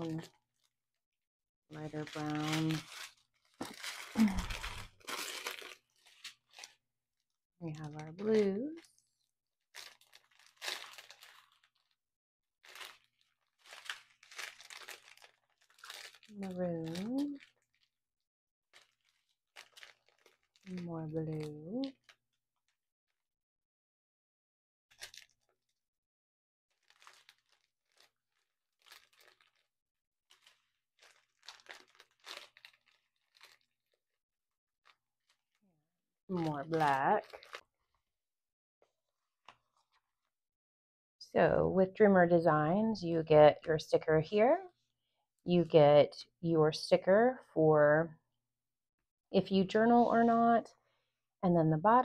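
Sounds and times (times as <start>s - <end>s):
plastic bags crinkling: 1.8s - 6.8s, 7.7s - 12.0s, 12.6s - 18.0s, 18.7s - 22.4s, 24.9s - 25.8s, 26.7s - 34.2s, 34.8s - 35.6s, 36.3s - 38.1s, 39.0s - 40.3s
small beads shifting in bag: 2.0s - 6.8s, 9.8s - 12.0s, 12.6s - 17.9s, 18.8s - 20.6s, 24.9s - 25.4s, 26.7s - 34.0s.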